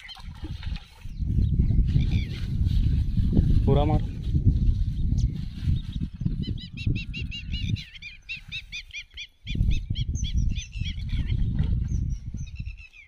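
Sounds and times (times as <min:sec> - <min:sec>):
bird chirping: 0:04.9 - 0:13.0.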